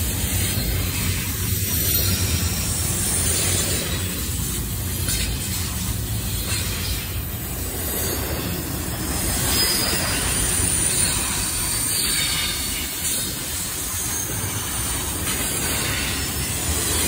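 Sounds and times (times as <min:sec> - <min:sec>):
train wheels rumbling on rails: 0:00.0 - 0:17.0
wheel squeal: 0:07.8 - 0:17.0.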